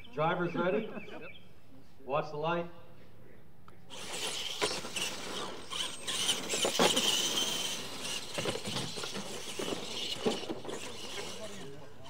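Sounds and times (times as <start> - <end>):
tires scrabbling on dirt: 3.9 - 12.0
toy truck motors whining: 3.9 - 12.0
trucks thumping on landing: 3.9 - 12.0.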